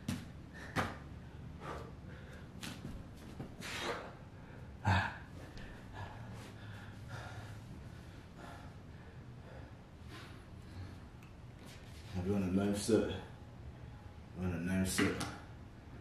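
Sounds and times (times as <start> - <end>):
man breathing hard: 0.4 - 2.6, 3.5 - 11.2.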